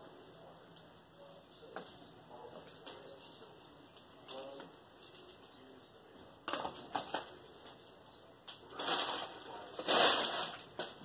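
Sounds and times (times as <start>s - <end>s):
rustling crunching handling noises: 6.4s - 11.0s.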